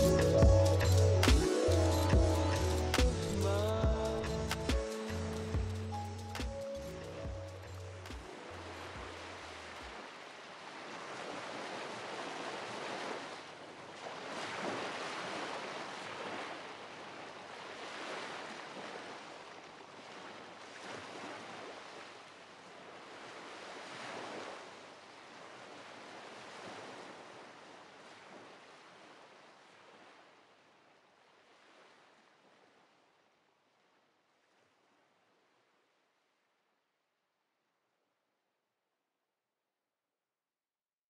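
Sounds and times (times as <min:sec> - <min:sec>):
low bass music notes: 0:00.0 - 0:08.2
ocean waves washing: 0:00.0 - 0:30.6.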